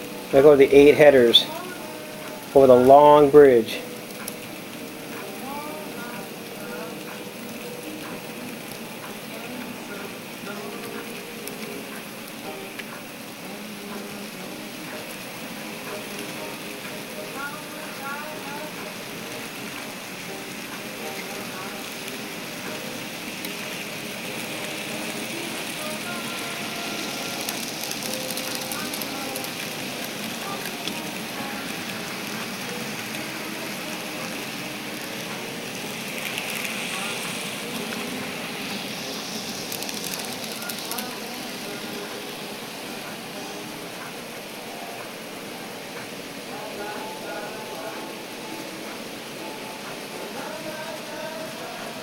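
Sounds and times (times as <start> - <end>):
model train wheels hissing: 3.8 - 45.0.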